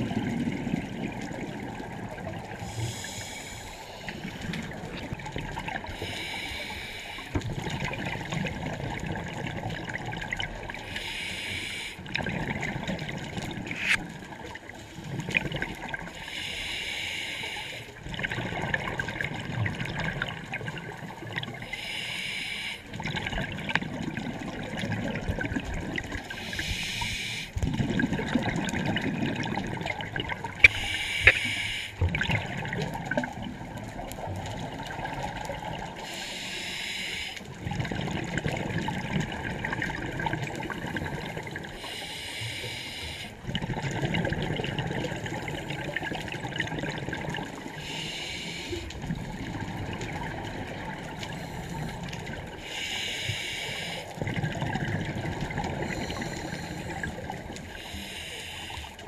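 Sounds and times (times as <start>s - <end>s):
exhaled bubbles rumbling underwater: 0.0s - 16.8s, 17.4s - 22.1s, 22.8s - 59.0s
regulator breathing hiss: 2.6s - 4.4s, 6.0s - 7.4s, 10.9s - 12.0s, 16.2s - 18.0s, 21.6s - 22.9s, 26.4s - 27.6s, 30.6s - 32.0s, 36.0s - 37.4s, 41.8s - 43.4s, 47.8s - 48.9s, 52.6s - 54.2s, 57.7s - 59.0s.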